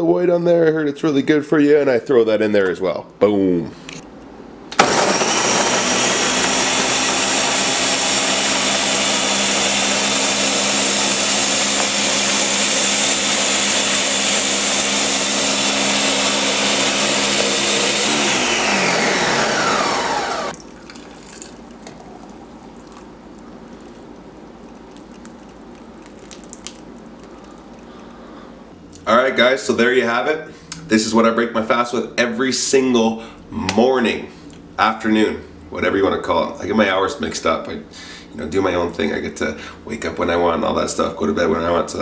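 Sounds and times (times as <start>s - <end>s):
blender running: 4.7s - 20.6s.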